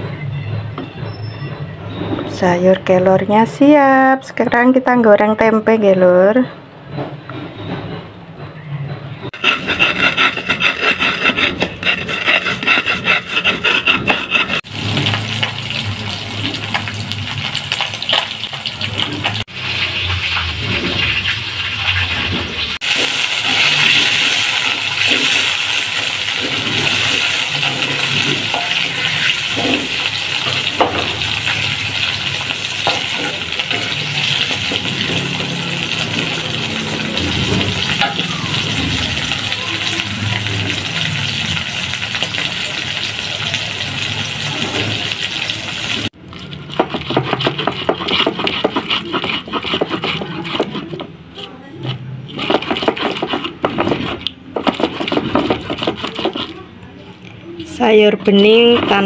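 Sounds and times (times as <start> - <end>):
rhythmic scraping strokes: 7.4 - 14.9, 46.8 - 56.8
hot oil sizzling in a wok: 14.6 - 48.0.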